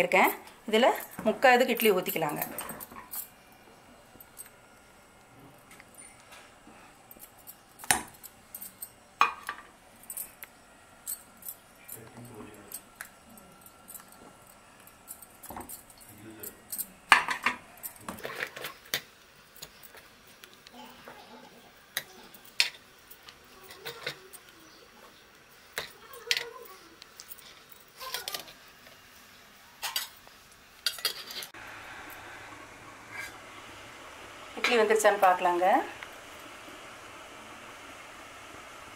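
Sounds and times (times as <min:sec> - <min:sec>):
steady hiss: 0:00.0 - 0:38.9
steel cups clinking: 0:07.1 - 0:20.4.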